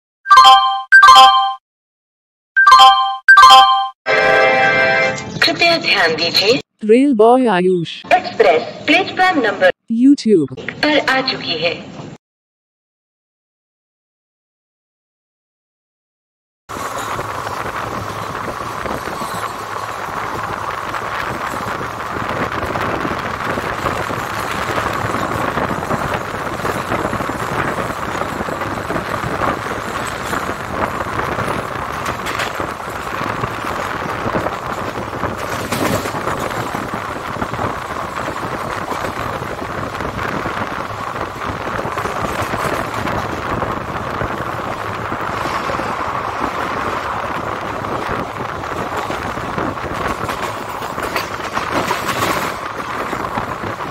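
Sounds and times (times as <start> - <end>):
train wheels rolling over rails: 16.7 - 53.9.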